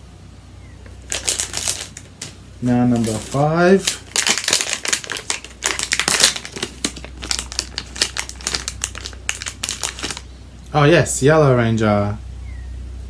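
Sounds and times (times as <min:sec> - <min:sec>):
foil packet crinkling: 0:00.9 - 0:10.3.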